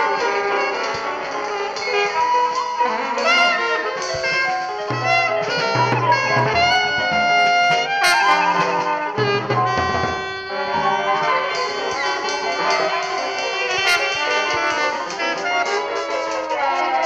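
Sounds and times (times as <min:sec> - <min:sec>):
free jazz music: 0:00.0 - 0:17.0
low bass notes: 0:04.9 - 0:08.0.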